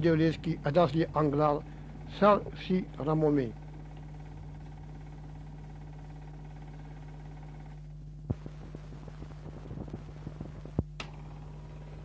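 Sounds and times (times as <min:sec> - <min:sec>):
electrical hum: 0:00.0 - 0:12.0
small clicks and crackles: 0:08.3 - 0:11.2.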